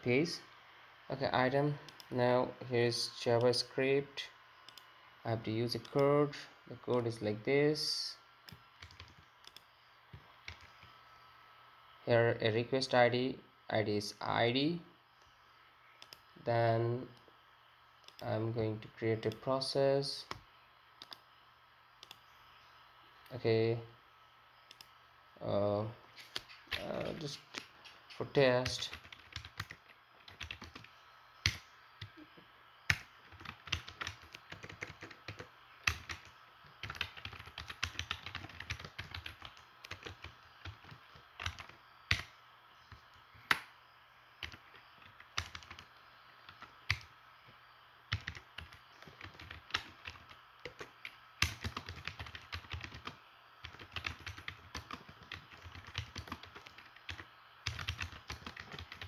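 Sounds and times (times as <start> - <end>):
typing on computer keyboard: 8.8 - 9.6, 28.7 - 31.6, 32.9 - 42.3, 44.4 - 45.9, 48.1 - 59.0.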